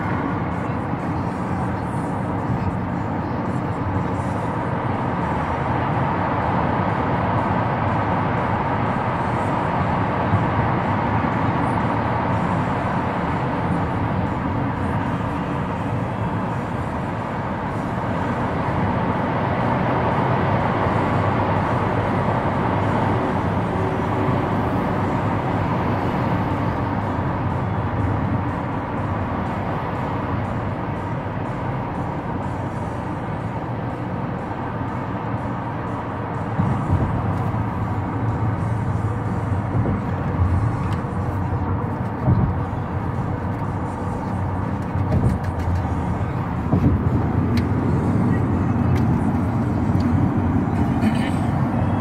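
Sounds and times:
car road and engine noise: 0:00.0 - 0:52.0.

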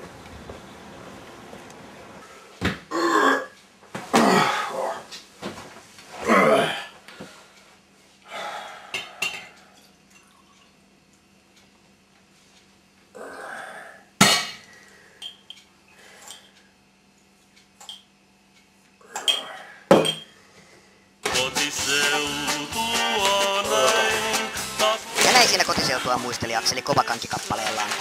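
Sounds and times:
man burping: 0:02.9 - 0:05.0, 0:06.2 - 0:06.9
coffee pouring into a mug: 0:10.1 - 0:10.8.

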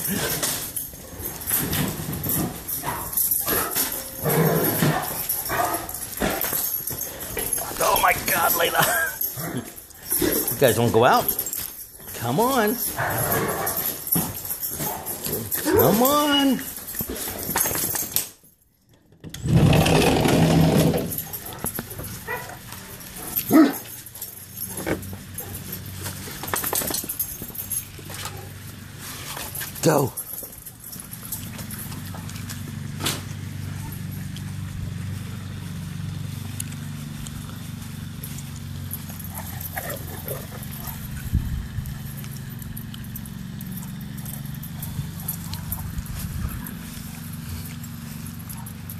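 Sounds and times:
dogs whining and yelping: 0:00.0 - 0:18.3, 0:20.6 - 0:29.6, 0:30.2 - 0:34.3, 0:38.9 - 0:41.3
scuffling and rustling: 0:21.0 - 0:42.8, 0:44.0 - 0:48.9.

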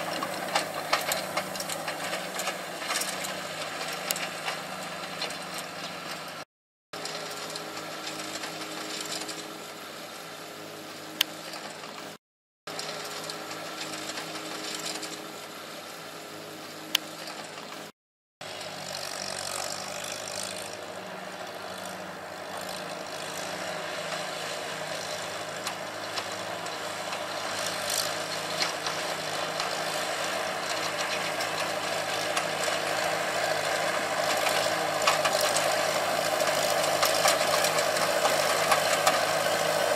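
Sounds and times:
hay rake rattling: 0:00.0 - 0:06.4, 0:12.7 - 0:15.4, 0:17.1 - 0:39.9
tractor engine running: 0:00.0 - 0:06.4, 0:07.0 - 0:39.9.

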